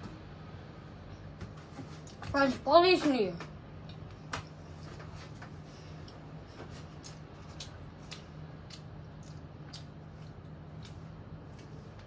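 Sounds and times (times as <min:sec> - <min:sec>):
steady low hum: 0:00.0 - 0:12.0
child chewing bread: 0:03.8 - 0:12.0.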